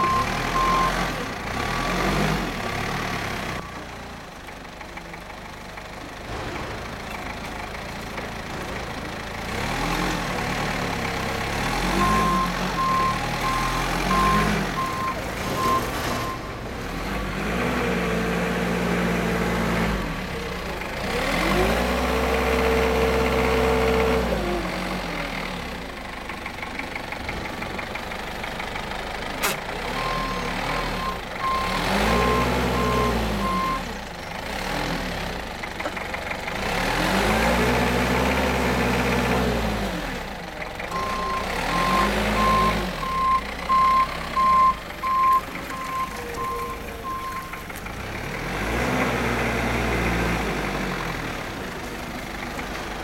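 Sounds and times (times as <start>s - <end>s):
reversing alarm beeping: 0.0s - 1.0s, 30.0s - 33.9s, 40.9s - 47.6s
forklift engine revving: 0.0s - 3.7s, 4.7s - 53.0s
sharp click: 29.4s - 29.6s.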